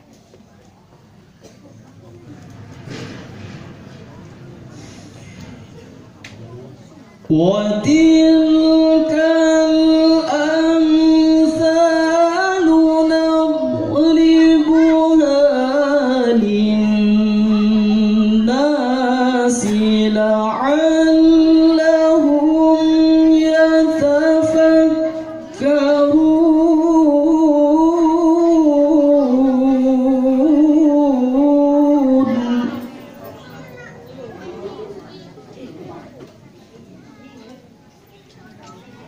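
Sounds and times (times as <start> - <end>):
man chanting recitation: 7.2 - 33.2.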